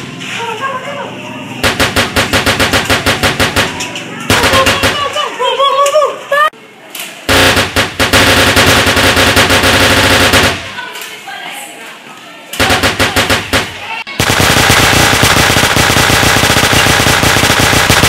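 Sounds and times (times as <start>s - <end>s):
automatic gunfire bursts: 1.6s - 5.2s, 7.3s - 10.9s, 12.6s - 18.0s.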